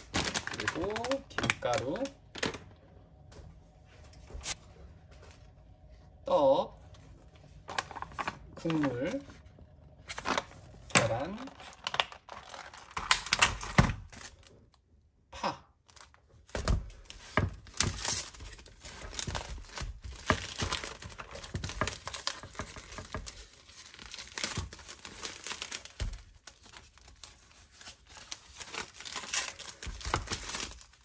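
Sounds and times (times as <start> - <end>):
plastic packaging crinkling: 0.0 - 2.9, 7.5 - 9.4, 10.0 - 14.8, 15.9 - 31.0.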